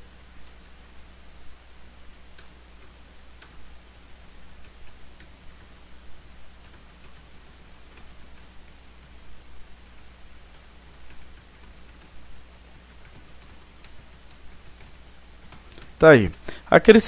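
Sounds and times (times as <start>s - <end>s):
low electrical hum: 0.0s - 17.0s
keyboard typing clicks: 6.6s - 8.6s, 10.5s - 16.6s.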